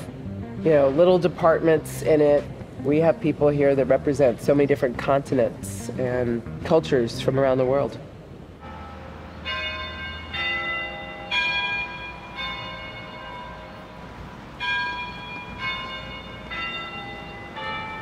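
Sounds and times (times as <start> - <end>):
church bells ringing: 8.6 - 18.0.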